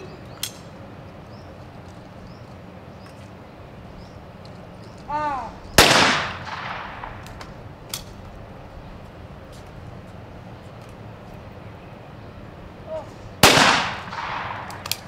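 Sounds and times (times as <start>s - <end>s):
person shouting call: 5.1s - 5.7s, 12.8s - 13.2s
shotgun shot: 5.8s - 7.2s, 13.4s - 14.8s.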